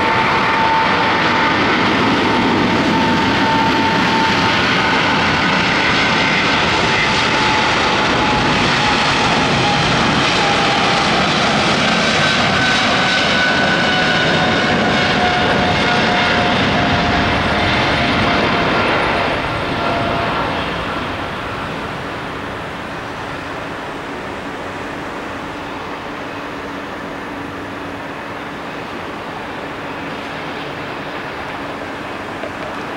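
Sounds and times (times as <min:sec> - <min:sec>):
jet engines at takeoff: 0:00.0 - 0:32.9.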